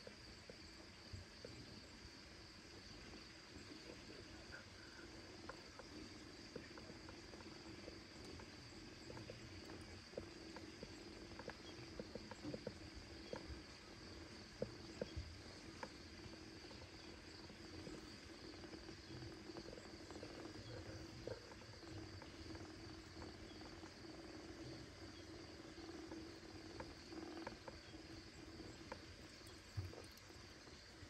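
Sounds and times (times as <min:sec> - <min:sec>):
soft ticks: 0:06.5 - 0:13.8, 0:14.5 - 0:16.4, 0:26.1 - 0:30.6.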